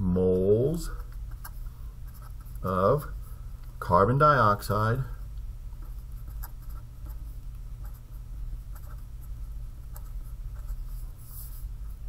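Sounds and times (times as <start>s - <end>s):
steady low hum: 0.0s - 12.0s
marker scratching on paper: 0.9s - 2.6s, 5.8s - 12.0s.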